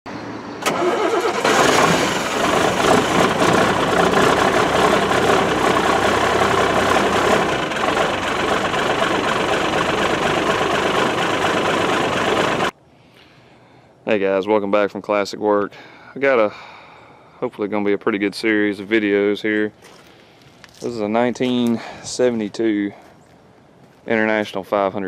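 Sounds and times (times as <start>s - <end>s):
engine running: 0.1s - 12.7s.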